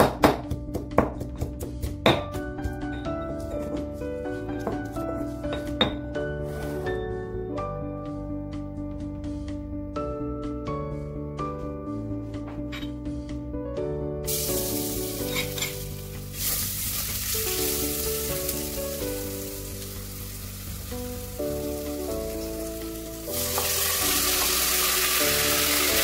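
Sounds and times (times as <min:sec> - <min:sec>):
soft background music: 0:00.0 - 0:26.0
garlic sizzling in hot oil: 0:14.3 - 0:26.0.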